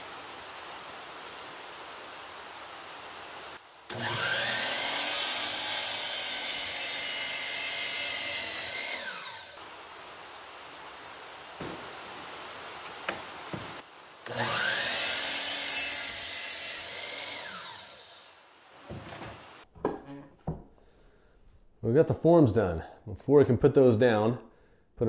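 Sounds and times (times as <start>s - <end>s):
saw blade cutting wood: 3.9s - 9.6s, 14.2s - 18.3s.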